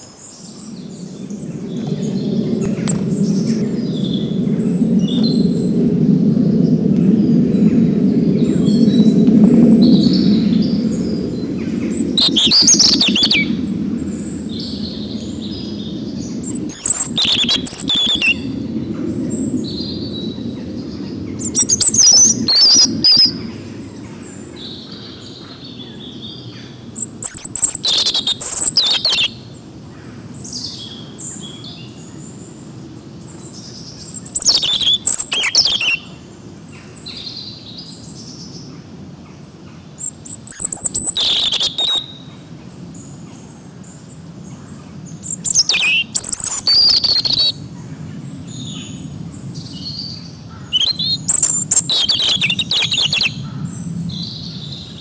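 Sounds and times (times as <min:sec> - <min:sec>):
soft bird chirps: 0:07.5 - 0:18.5, 0:27.0 - 0:29.3, 0:33.4 - 0:36.1, 0:40.0 - 0:42.3, 0:45.1 - 0:47.6, 0:48.5 - 0:55.0
robin singing warbling phrases: 0:11.9 - 0:13.6, 0:16.4 - 0:18.5, 0:21.4 - 0:23.3, 0:27.2 - 0:29.3, 0:34.1 - 0:36.0, 0:40.0 - 0:42.2, 0:45.2 - 0:47.6, 0:49.8 - 0:53.4.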